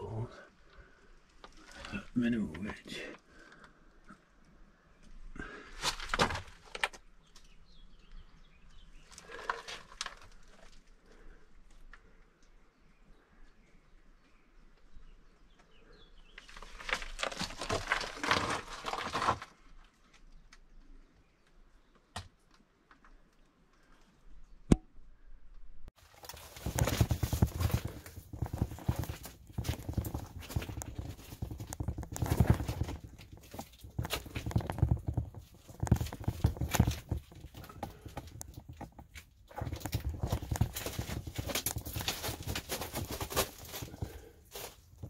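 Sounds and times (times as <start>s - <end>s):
footsteps crunching on loose stones: 26.0s - 45.0s.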